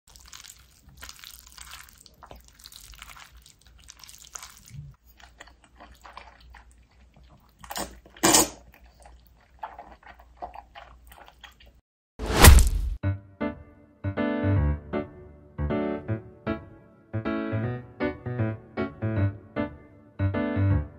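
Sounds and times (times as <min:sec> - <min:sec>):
noodles slurped loudly: 0:00.1 - 0:11.8
noodles squishing in sauce: 0:00.1 - 0:11.8.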